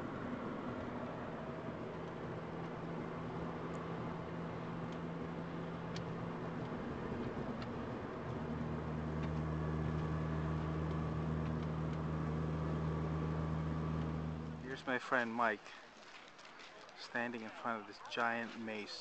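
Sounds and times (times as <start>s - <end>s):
car engine hum: 0.0s - 14.8s
road noise inside moving car: 0.0s - 14.8s.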